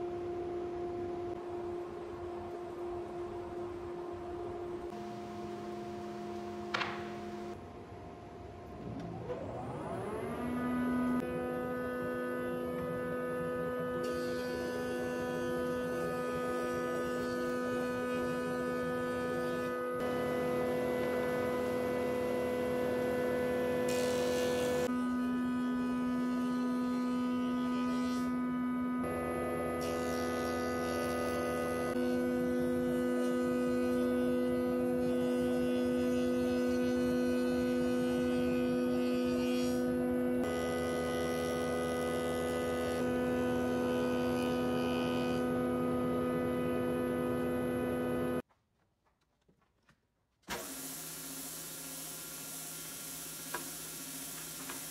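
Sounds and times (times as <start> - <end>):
jointer humming whine: 0.0 - 48.4.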